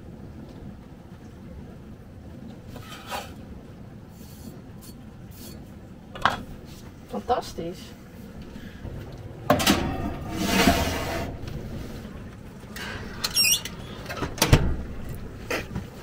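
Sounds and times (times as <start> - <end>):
scrape: 2.7 - 3.4, 10.2 - 12.0.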